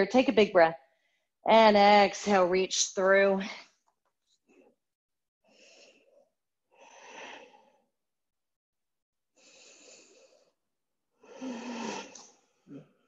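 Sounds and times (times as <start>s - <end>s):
person breathing slowly: 5.5s - 7.9s, 9.4s - 10.6s.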